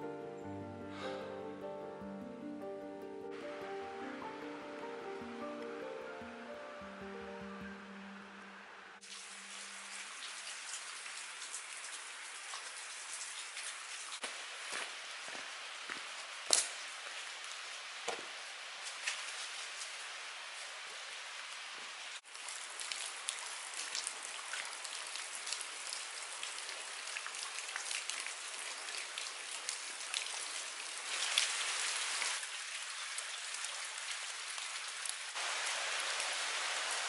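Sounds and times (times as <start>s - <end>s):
running water hiss: 6.0s - 37.0s
water dripping: 8.4s - 17.6s, 22.3s - 36.3s.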